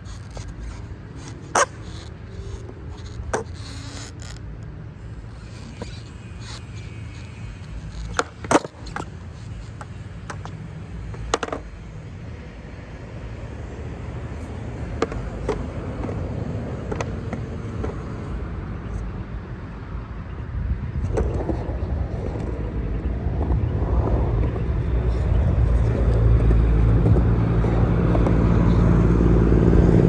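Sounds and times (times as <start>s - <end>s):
skateboard clacking on concrete: 7.6s - 11.8s, 14.5s - 18.2s.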